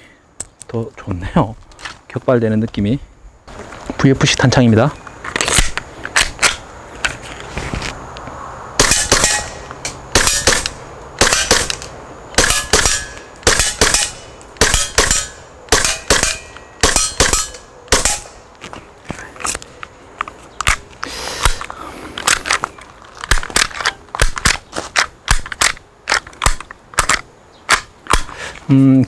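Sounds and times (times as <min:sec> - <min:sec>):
airsoft pistol shots: 0:08.8 - 0:11.8, 0:12.4 - 0:18.3.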